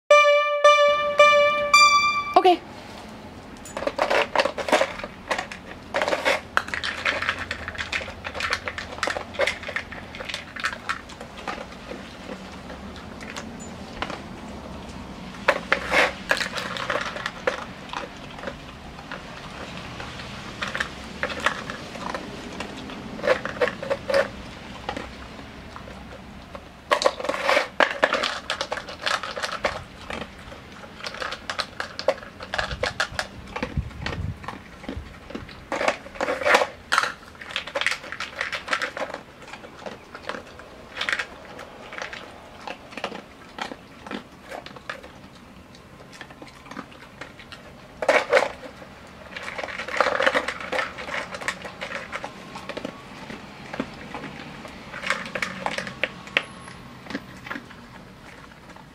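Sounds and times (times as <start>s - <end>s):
dog crunching dry food: 3.0s - 58.9s
plastic toy clattering: 3.7s - 11.7s, 26.9s - 30.3s.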